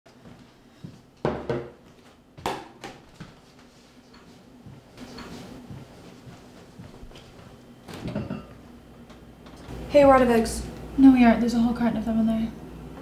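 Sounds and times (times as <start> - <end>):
faint room hum: 0.1 - 13.0
mug knocking on wooden table: 1.3 - 1.7
kitchen clinks: 8.0 - 8.6.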